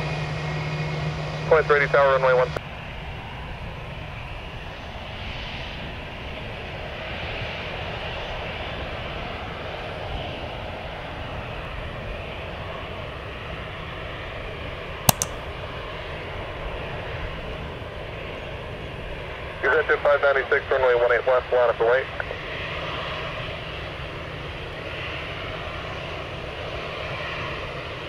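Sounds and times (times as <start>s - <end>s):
sharp click: 15.1s - 15.4s.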